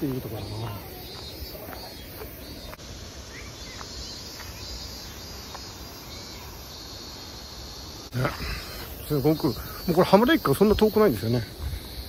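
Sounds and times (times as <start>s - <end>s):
bird chirps: 0.0s - 7.4s
insects buzzing: 0.0s - 12.0s.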